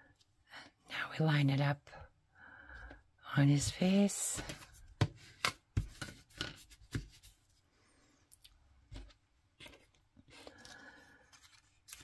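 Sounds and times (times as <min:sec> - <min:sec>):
paper rustling: 0:08.9 - 0:12.0.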